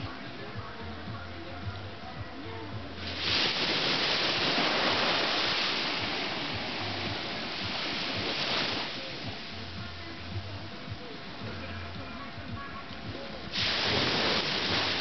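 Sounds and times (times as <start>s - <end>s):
surf washing onto beach: 3.0s - 15.0s.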